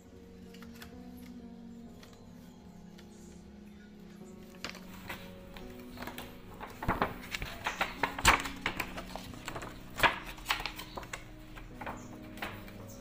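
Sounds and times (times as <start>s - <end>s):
plastic pouch crackling: 4.4s - 13.0s.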